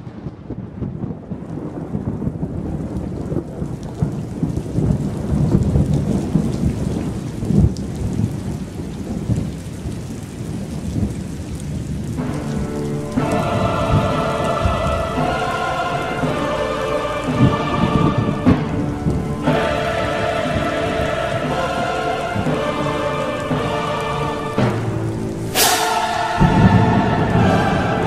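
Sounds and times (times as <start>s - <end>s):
heavy rain: 0.0s - 28.0s
thunder rumbling: 0.0s - 28.0s
music: 12.2s - 28.0s.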